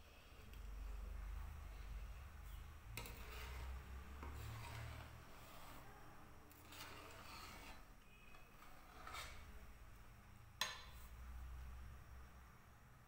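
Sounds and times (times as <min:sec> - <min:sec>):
steel scraper scraping a pan: 0:02.9 - 0:05.9, 0:06.5 - 0:09.6.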